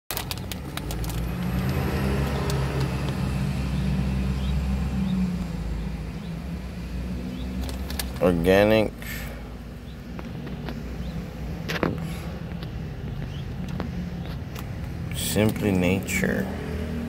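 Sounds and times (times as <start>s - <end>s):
car engine hum inside cabin: 0.1s - 9.0s.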